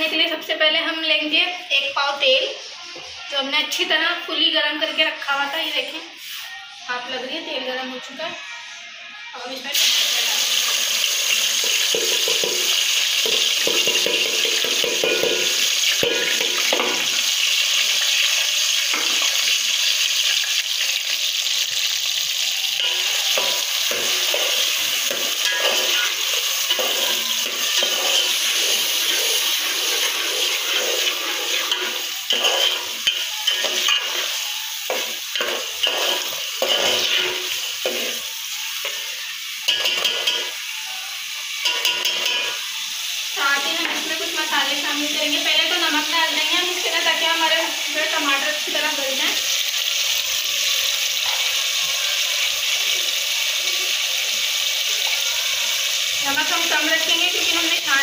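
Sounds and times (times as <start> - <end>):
tomatoes sizzling in oil: 0.0 - 58.0
ladle scraping a pot: 22.8 - 34.4.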